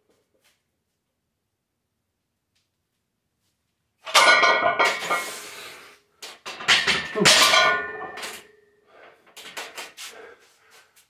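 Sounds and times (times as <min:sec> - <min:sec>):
metal weight plates clanking: 0:04.1 - 0:05.5, 0:06.3 - 0:08.5.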